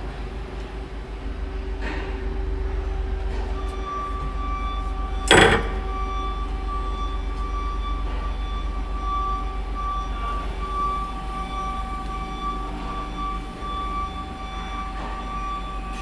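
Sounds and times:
loud clack: 0:05.3 - 0:06.0
machine humming: 0:05.3 - 0:06.3.

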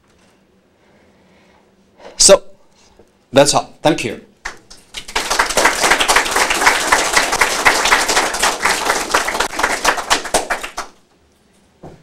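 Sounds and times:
audience applauding: 0:04.4 - 0:11.0.

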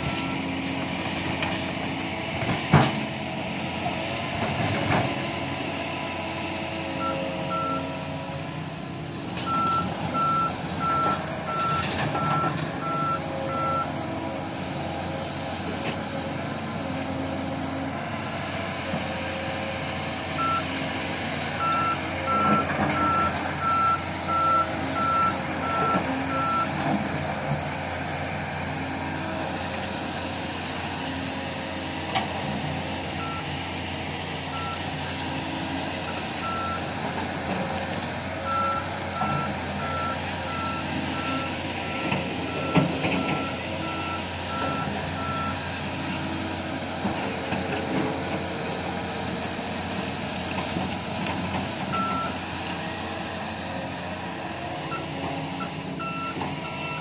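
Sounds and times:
diesel engine running: 0:00.0 - 0:57.0
reversing alarm beeping: 0:07.0 - 0:08.1, 0:09.4 - 0:14.0, 0:20.4 - 0:20.7, 0:21.6 - 0:26.8, 0:33.2 - 0:33.5, 0:34.5 - 0:34.9, 0:36.1 - 0:36.9, 0:38.4 - 0:45.6, 0:51.9 - 0:52.4, 0:54.9 - 0:57.0.

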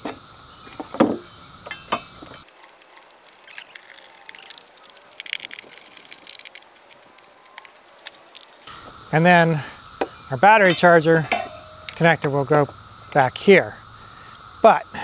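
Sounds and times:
metal battery connectors clinking: 0:01.7 - 0:08.7, 0:10.6 - 0:12.2
sharp knocks: 0:10.0 - 0:12.0.

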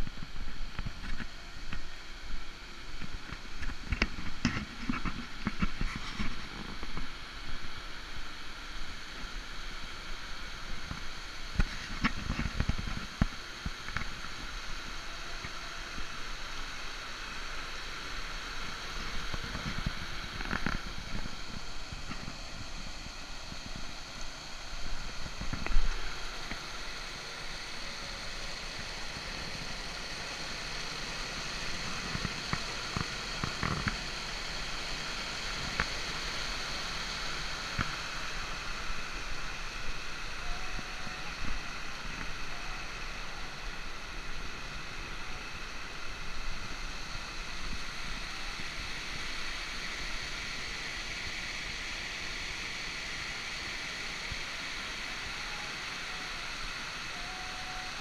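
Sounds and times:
water rushing over a weir: 0:00.0 - 0:58.0.

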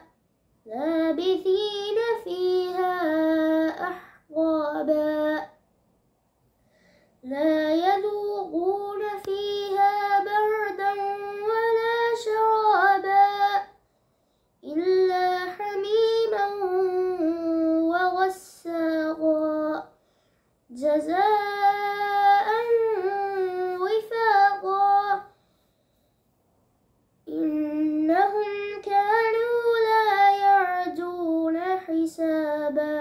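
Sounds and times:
short breaths: 0:06.5 - 0:07.2, 0:13.8 - 0:14.6, 0:19.9 - 0:20.6, 0:25.3 - 0:26.4
boy chanting recitation: 0:14.6 - 0:19.9, 0:20.7 - 0:25.3, 0:27.3 - 0:33.0.

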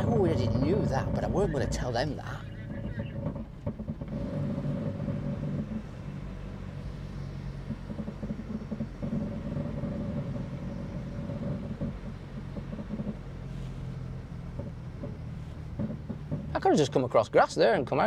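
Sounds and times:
car engine low drone: 0:00.0 - 0:18.0.

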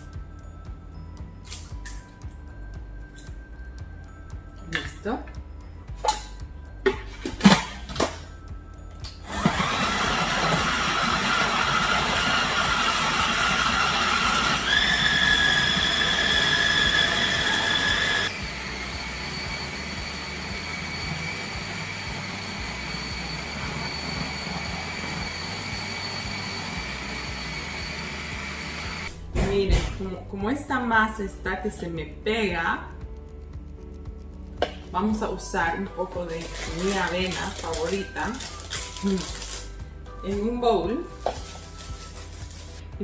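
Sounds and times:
food processor whining: 0:09.2 - 0:29.1, 0:36.4 - 0:39.7.

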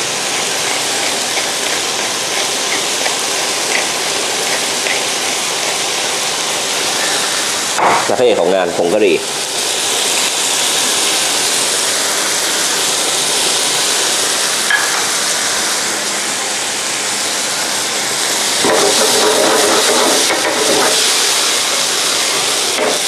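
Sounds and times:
food sizzling in oil in a pan: 0:00.0 - 0:23.0
wooden spatula scraping a pan: 0:18.6 - 0:21.1.

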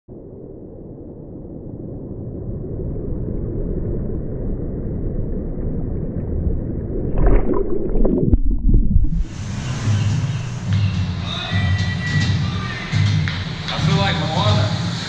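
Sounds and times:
muffled rush of water: 0:06.4 - 0:10.6
wave splashing over camera: 0:06.9 - 0:09.7.

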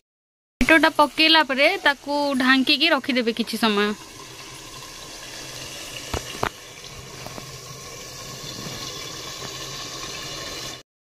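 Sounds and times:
curry sizzling and bubbling: 0:00.6 - 0:10.8.

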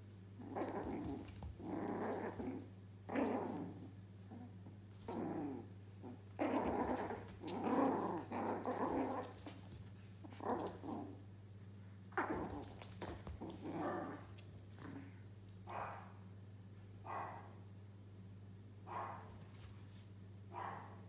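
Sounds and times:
puppies growling: 0:00.4 - 0:11.3, 0:12.1 - 0:15.2.

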